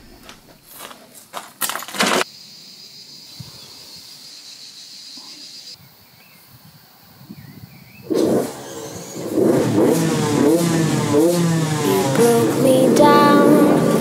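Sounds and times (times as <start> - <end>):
faint high-pitched hiss: 2.0 - 7.9.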